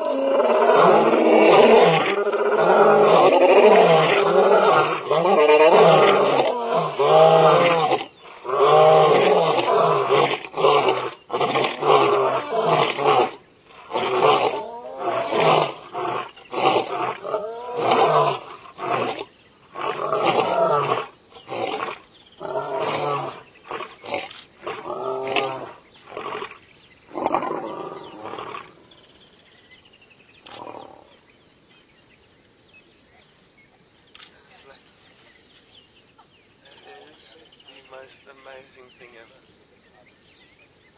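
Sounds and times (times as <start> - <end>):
lion roaring: 0.0 - 28.9, 30.4 - 31.2.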